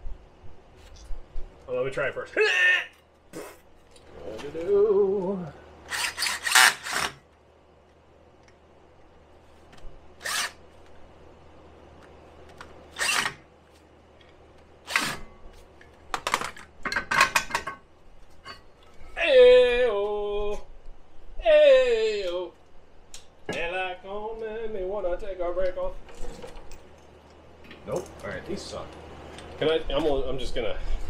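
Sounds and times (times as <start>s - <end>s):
fan hum: 0.0s - 31.0s
cordless drill bursts: 5.9s - 7.2s, 10.2s - 10.6s, 12.9s - 13.4s.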